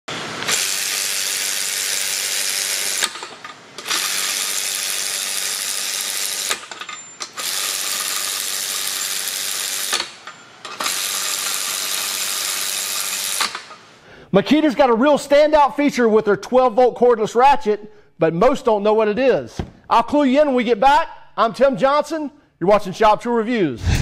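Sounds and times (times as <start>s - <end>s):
cordless ratchet spinning nuts: 0.4s - 13.8s
ratchet click: 0.4s - 13.8s.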